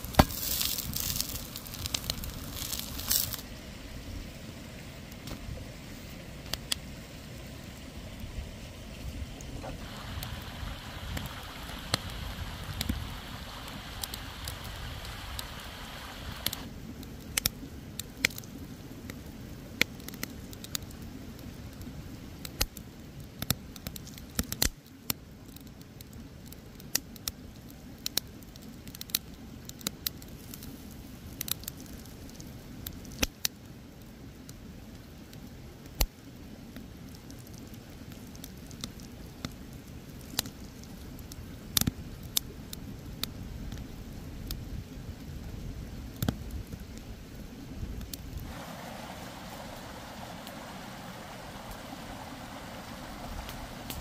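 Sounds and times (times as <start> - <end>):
fish flesh squishing: 0.0 - 3.4
sharp crackles: 0.0 - 3.5, 9.6 - 21.1, 22.4 - 33.6, 35.2 - 44.6, 47.9 - 54.0
stream rushing: 0.0 - 16.7, 48.4 - 54.0.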